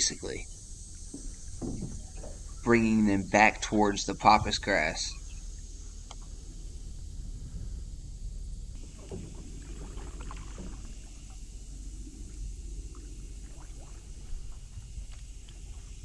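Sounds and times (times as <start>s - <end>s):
light water movement: 0.0s - 16.0s
steady high hiss: 0.0s - 16.0s
low wind rumble on microphone: 4.0s - 16.0s
small ticks and splashes: 8.8s - 16.0s.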